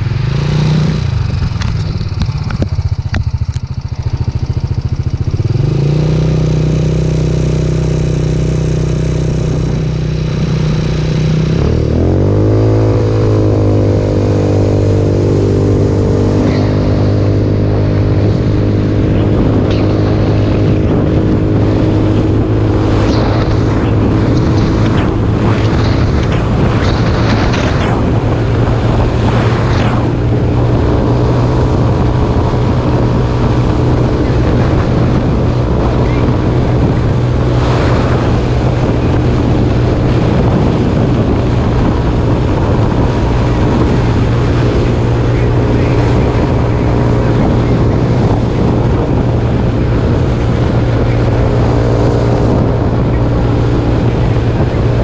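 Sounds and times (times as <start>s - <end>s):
trike engine revving: 0.0s - 55.0s
wind and road noise: 0.0s - 55.0s.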